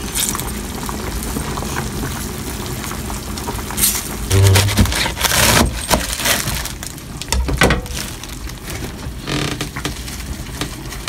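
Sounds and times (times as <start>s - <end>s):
knife crunching through cabbage: 3.8s - 6.9s.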